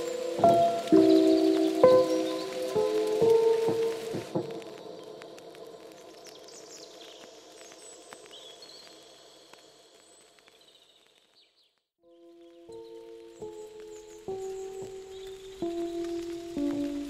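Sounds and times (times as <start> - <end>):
soft background music: 0.0 - 6.9, 12.1 - 17.0.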